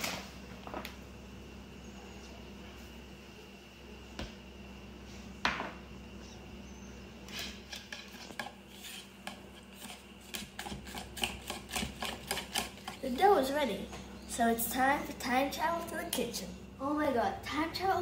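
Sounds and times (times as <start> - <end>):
whisk scraping plastic bowl: 7.9 - 13.1.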